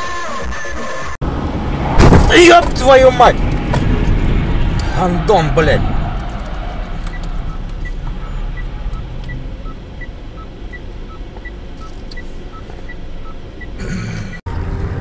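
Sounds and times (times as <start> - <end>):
engine and road hum in cabin: 1.1 - 15.0
car indicator ticking: 8.6 - 13.8.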